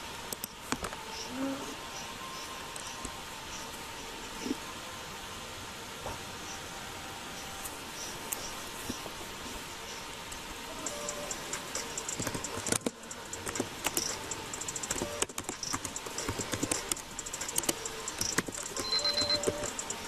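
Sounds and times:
keyboard key clicks: 0:10.8 - 0:20.0.

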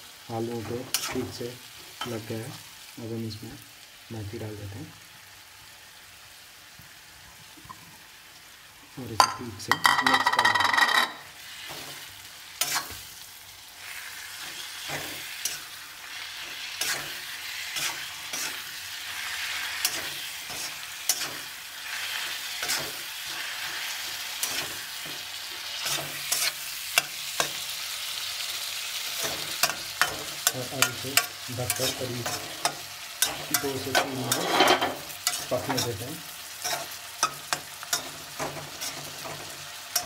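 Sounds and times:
food sizzling in a pan: 0:00.0 - 0:40.0
spoon knocking and scraping pan: 0:09.2 - 0:12.0, 0:16.8 - 0:18.7, 0:19.8 - 0:21.5, 0:22.6 - 0:27.6, 0:29.2 - 0:36.0, 0:36.6 - 0:40.0.

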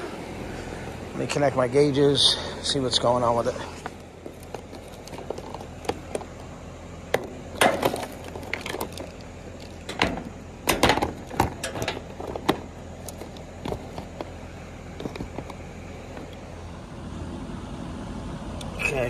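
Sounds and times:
steady low hum: 0:00.0 - 0:19.0
tool case and gauges clattering: 0:03.8 - 0:06.5, 0:07.1 - 0:16.4.

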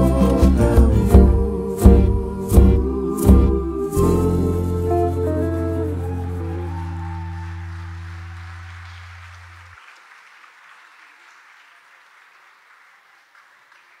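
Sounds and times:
song's held low note: 0:00.0 - 0:09.7
audience applauding: 0:06.0 - 0:14.0.

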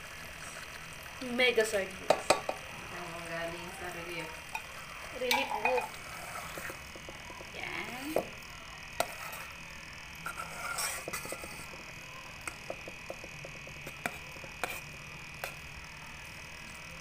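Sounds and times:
faint steady hum: 0:00.0 - 0:17.0
metal spoon clinking on pot: 0:05.2 - 0:05.9.

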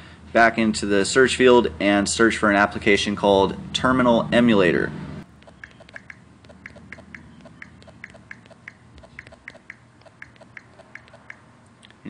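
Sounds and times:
phone keyboard clicks: 0:05.4 - 0:12.0.

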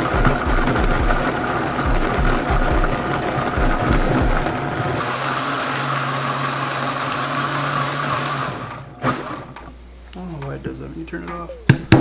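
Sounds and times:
blender motor running: 0:00.0 - 0:09.6.

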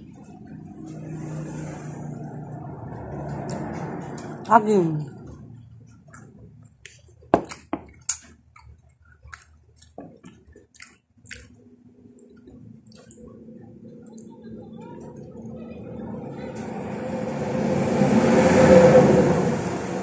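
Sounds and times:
low engine hum: 0:00.0 - 0:06.6, 0:12.4 - 0:20.0
wet mouth eating sounds: 0:05.9 - 0:14.4.

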